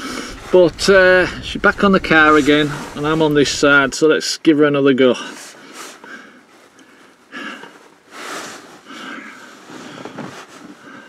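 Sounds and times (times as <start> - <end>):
man breathing and sniffing: 0.0 - 0.6, 5.2 - 11.0.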